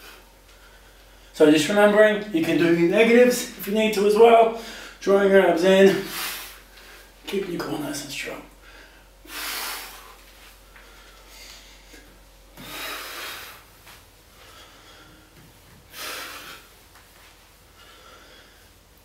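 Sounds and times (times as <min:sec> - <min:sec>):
quiet breathing: 0:08.5 - 0:19.0
man blowing out forcefully: 0:09.3 - 0:10.2.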